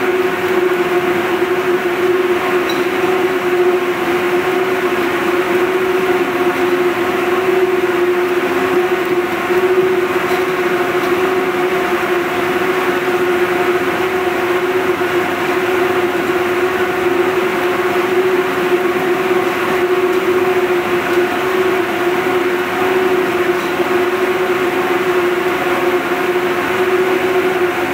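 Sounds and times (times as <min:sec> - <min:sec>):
constant hum: 0:00.0 - 0:27.9
mill machinery drone: 0:00.0 - 0:27.9.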